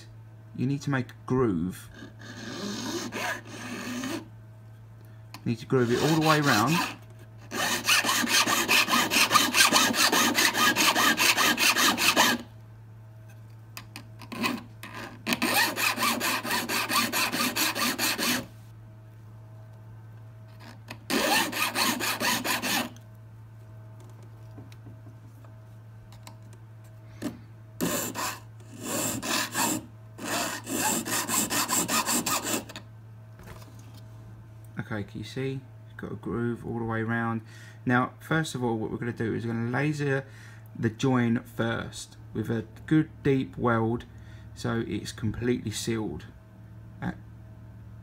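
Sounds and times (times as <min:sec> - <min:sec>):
metal file rasping on ring: 0:01.9 - 0:04.3, 0:05.8 - 0:12.5, 0:14.3 - 0:18.5, 0:20.6 - 0:23.0, 0:27.2 - 0:32.8.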